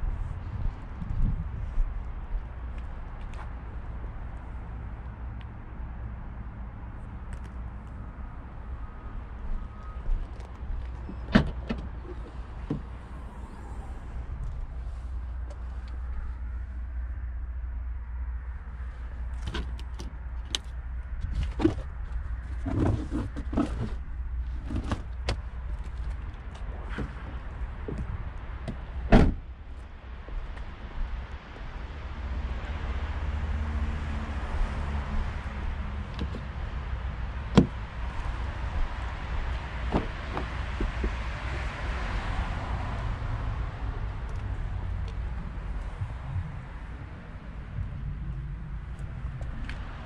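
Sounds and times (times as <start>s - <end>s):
vehicle hum: 0.0s - 50.0s
wind rumbling on microphone: 0.0s - 50.0s
tailgate clunks: 11.1s - 13.0s, 28.7s - 29.4s, 37.5s - 37.8s, 39.8s - 41.2s.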